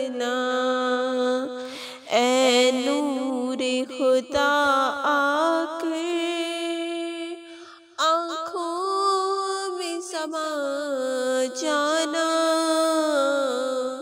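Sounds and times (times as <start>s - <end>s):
woman singing unaccompanied: 0.0s - 7.4s, 8.0s - 14.0s.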